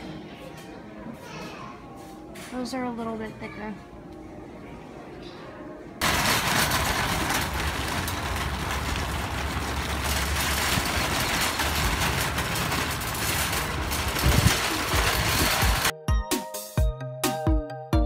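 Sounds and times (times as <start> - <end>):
shopping cart rattling on concrete: 6.0 - 15.9.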